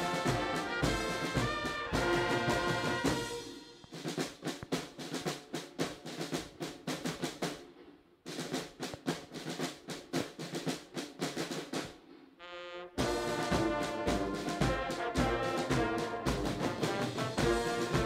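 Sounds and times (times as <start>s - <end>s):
brass band: 0.0s - 4.4s, 11.5s - 18.0s
snare and bass drums marching cadence: 0.0s - 18.0s.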